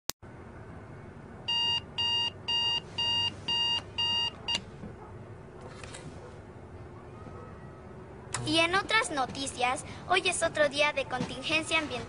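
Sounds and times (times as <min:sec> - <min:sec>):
alarm clock beeping: 0:01.5 - 0:04.6.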